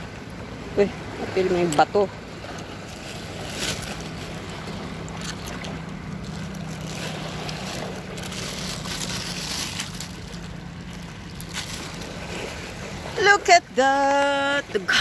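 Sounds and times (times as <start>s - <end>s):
surf: 0.0s - 15.0s
plastic bag rustling: 2.9s - 12.8s.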